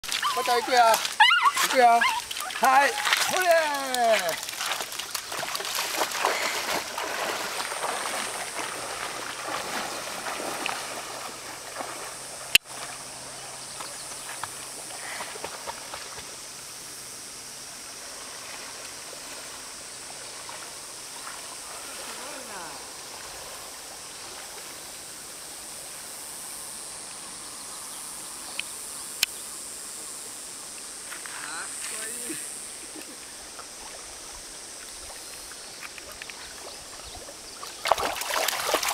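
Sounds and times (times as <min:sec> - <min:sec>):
dog splashing through water: 0:00.0 - 0:13.0, 0:35.9 - 0:38.9
river water rushing: 0:00.0 - 0:13.3, 0:31.9 - 0:38.9.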